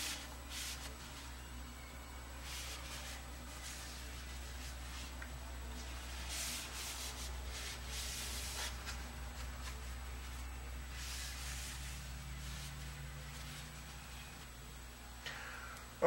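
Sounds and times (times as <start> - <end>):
paper towel wiping steel rod: 0.0 - 1.3, 5.8 - 14.2
low steady hum: 0.0 - 16.0.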